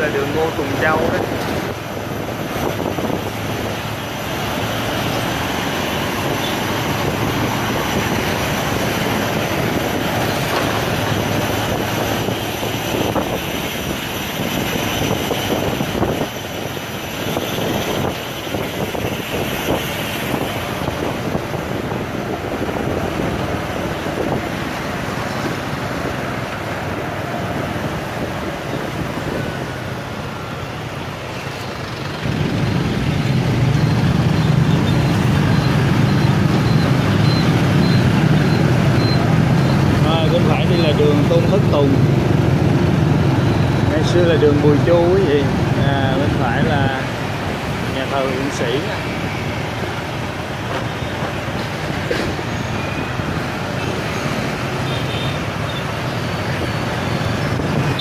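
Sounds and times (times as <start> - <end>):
road noise: 0.0 - 58.0
scooter engines droning: 0.0 - 58.0.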